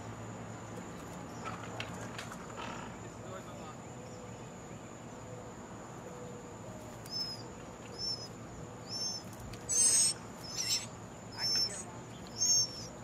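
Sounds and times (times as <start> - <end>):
nestlings chirping: 6.7 - 13.0
harsh begging calls: 7.0 - 13.0.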